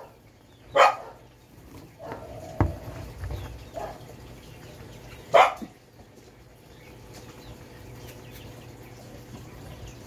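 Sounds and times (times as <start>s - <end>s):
dog barking: 0.0s - 1.3s, 2.0s - 2.4s, 3.8s - 4.1s, 5.3s - 5.8s.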